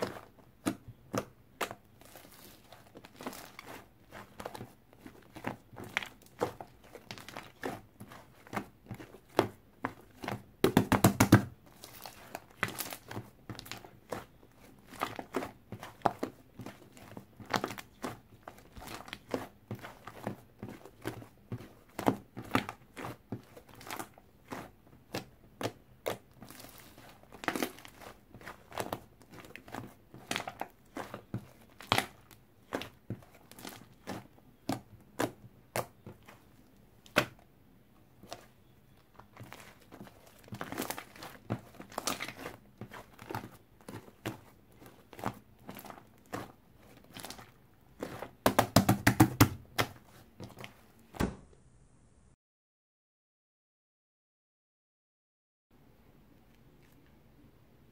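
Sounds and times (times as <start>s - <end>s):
slime crackling and popping: 22.2s - 36.2s, 39.2s - 50.0s.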